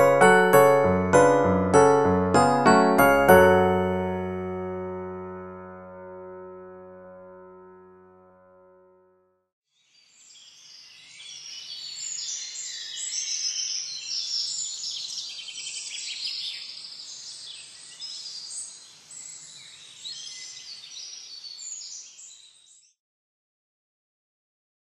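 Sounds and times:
small birds chirping: 10.0s - 22.9s.

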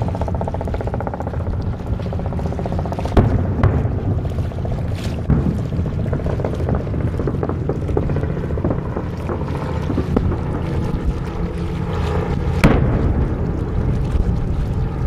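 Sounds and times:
low steady rumble: 0.0s - 15.0s
distant fireworks popping and crackling: 3.1s - 11.3s, 12.4s - 14.3s.

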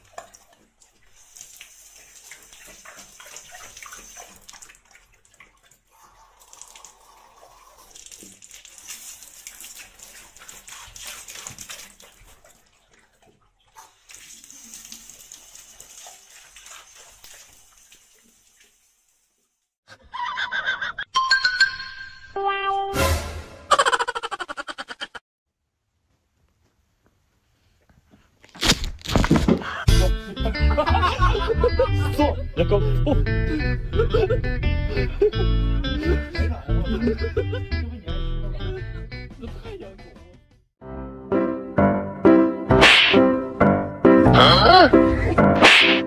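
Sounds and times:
water splashing on tiled floor: 0.0s - 19.5s
music: 22.4s - 23.7s, 29.9s - 46.0s.

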